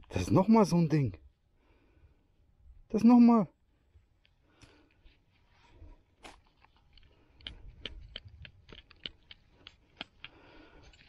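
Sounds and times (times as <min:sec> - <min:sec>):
soil crumbling in gloved hands: 0:04.2 - 0:11.0.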